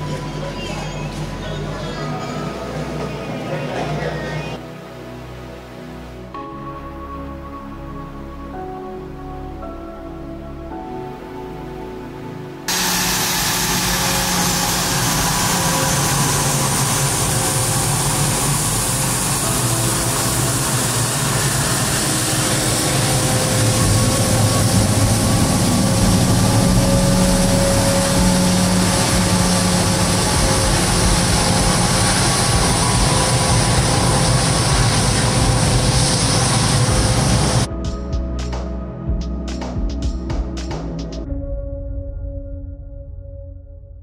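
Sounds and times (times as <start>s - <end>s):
jet engines rumbling: 12.7s - 37.7s.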